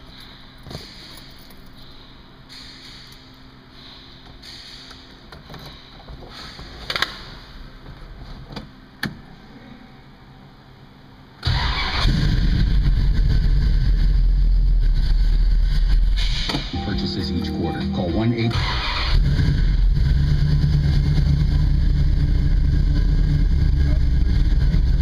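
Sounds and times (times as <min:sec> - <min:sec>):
car engine starting and running: 0:11.4 - 0:25.0.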